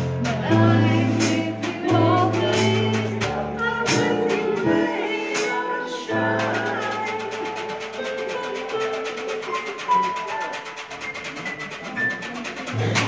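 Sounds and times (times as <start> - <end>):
electronic keyboard jazz ballad: 0.0 - 13.0
snare drum and cymbal: 0.0 - 13.0
woman singing: 0.2 - 9.0.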